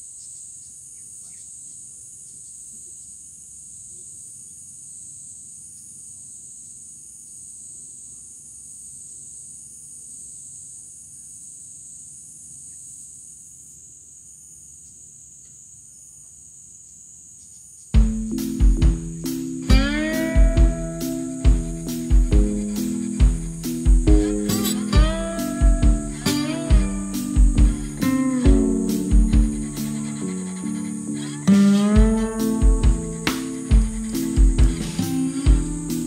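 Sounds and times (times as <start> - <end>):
high-pitched insect chorus: 0.0 - 36.0
plucked guitar music: 18.0 - 36.0.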